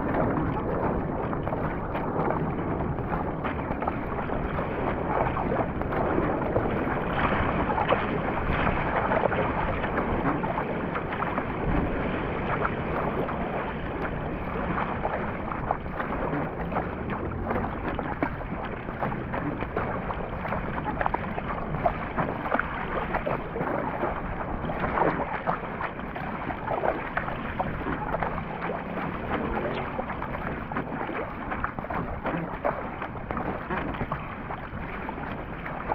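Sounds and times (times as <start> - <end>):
paddle splashing water: 0.0 - 35.9
sea water rushing: 0.0 - 35.9
wind buffeting microphone: 0.0 - 35.9.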